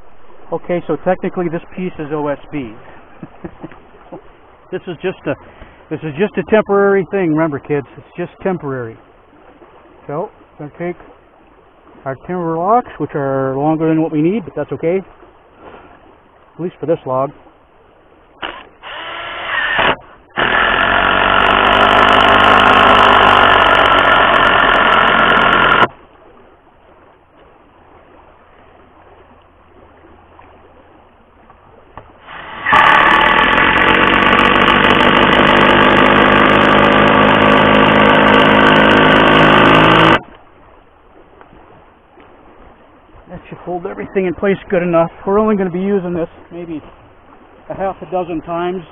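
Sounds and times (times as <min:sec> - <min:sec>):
cordless power driver running: 0:18.4 - 0:25.9, 0:32.3 - 0:40.2.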